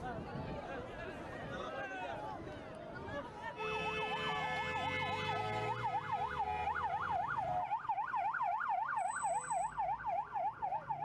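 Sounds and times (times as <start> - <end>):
ambulance siren yelping: 5.8 - 11.0.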